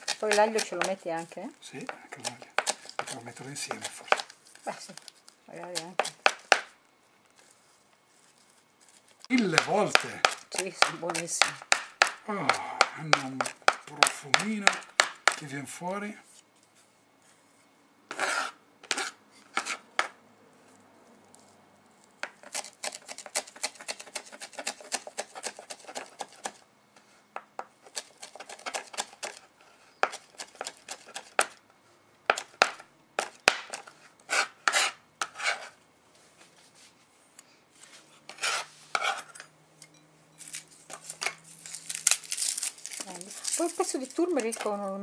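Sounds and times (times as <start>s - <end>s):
knife chopping on cutting board: 0.0s - 4.3s, 5.6s - 6.7s, 9.4s - 15.5s, 22.2s - 26.6s, 27.6s - 29.4s, 32.3s - 35.7s.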